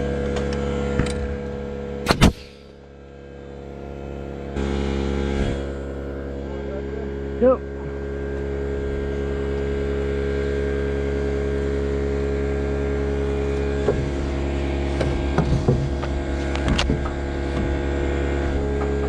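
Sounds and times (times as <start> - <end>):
engine running steadily: 0.0 - 19.0
knocks and clicks on timber: 13.8 - 14.2, 14.9 - 17.9.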